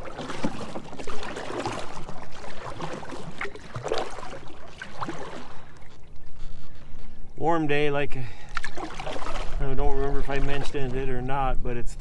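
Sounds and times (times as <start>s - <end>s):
river water gurgling: 0.0s - 5.8s
small water splashes: 0.0s - 6.2s, 8.4s - 11.2s.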